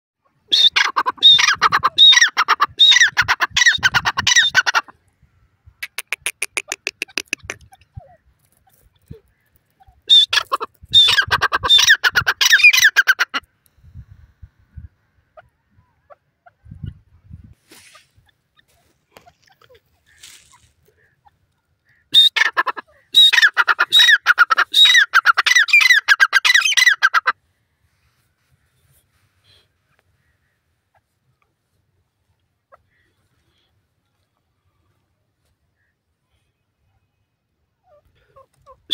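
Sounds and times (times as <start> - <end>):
bird harsh repeated calls: 0.5 - 4.9, 5.8 - 13.4, 17.8 - 27.4.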